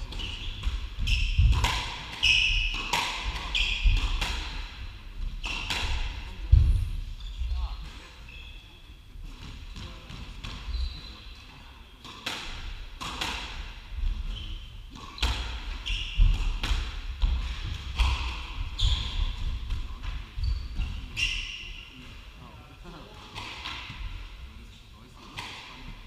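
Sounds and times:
shoes squeaking on wooden floor: 0:00.0 - 0:01.6.

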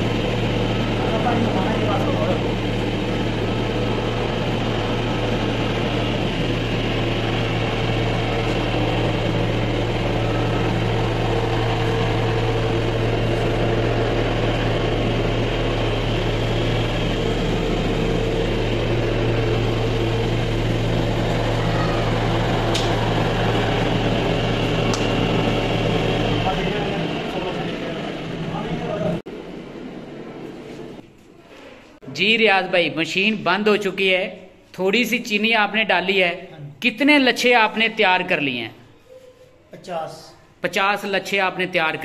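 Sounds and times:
cotton candy machine humming: 0:00.0 - 0:31.4.

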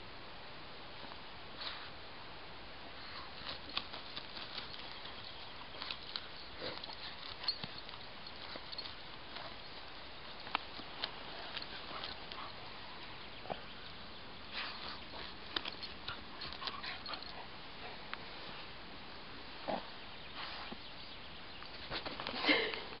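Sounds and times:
paws scratching soil: 0:03.0 - 0:18.8, 0:19.6 - 0:21.0, 0:21.6 - 0:22.8.

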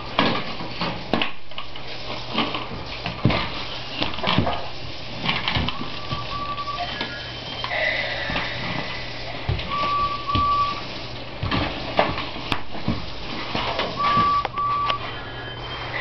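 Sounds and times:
short beeps: 0:06.0 - 0:07.8, 0:09.7 - 0:10.8.

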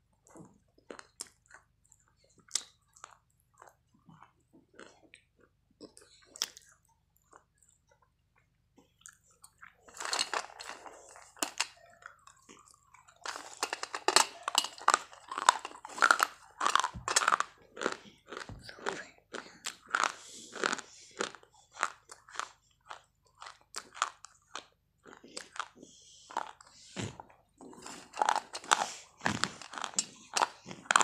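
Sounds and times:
crunching and chewing: 0:00.0 - 0:31.0.

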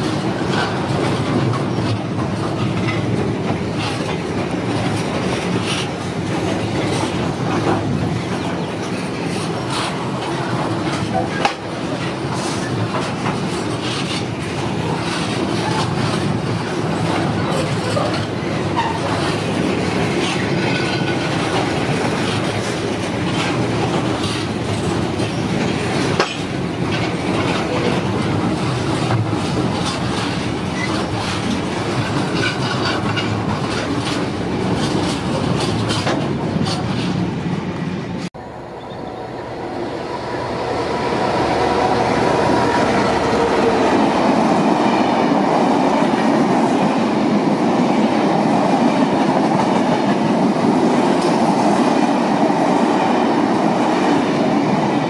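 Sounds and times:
wheels clicking over rail joints: 0:00.0 - 0:37.4
diesel locomotive engine: 0:00.0 - 0:55.0
freight train rumbling past: 0:00.0 - 0:55.0.

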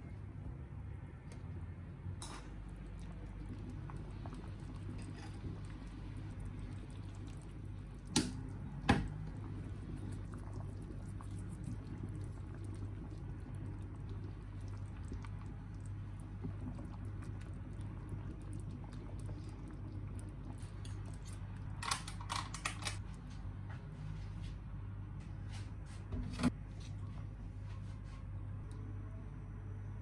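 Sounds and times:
low hum: 0:00.0 - 0:30.0
soup bubbling and stirring: 0:02.5 - 0:21.8.

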